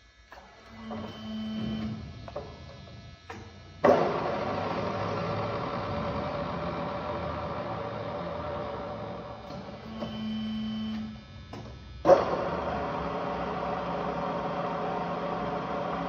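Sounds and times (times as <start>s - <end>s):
short machine hum: 0.4s - 16.0s
drill machine running: 3.8s - 11.2s.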